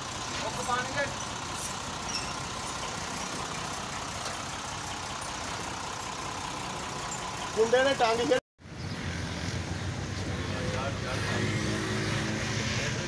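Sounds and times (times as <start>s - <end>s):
engine running: 0.0s - 8.4s.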